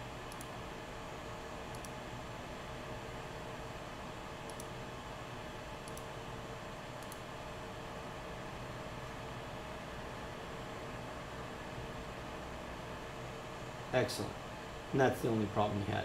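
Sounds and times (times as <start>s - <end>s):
faint hum: 0.0s - 16.0s
computer mouse clicks: 0.3s - 0.6s, 1.7s - 2.0s, 4.4s - 4.8s, 5.8s - 6.1s, 7.0s - 7.3s.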